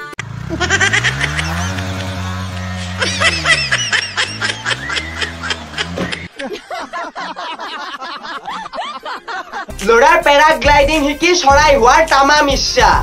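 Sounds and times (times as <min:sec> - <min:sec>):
people laughing: 0:00.5 - 0:09.8.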